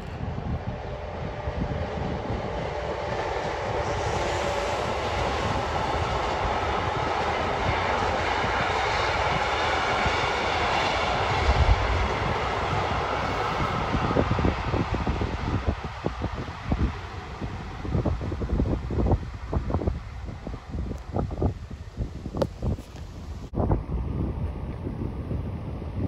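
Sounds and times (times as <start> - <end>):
train wheels rumbling on rails: 0.0 - 19.2
wind thumps on microphone: 0.0 - 26.0.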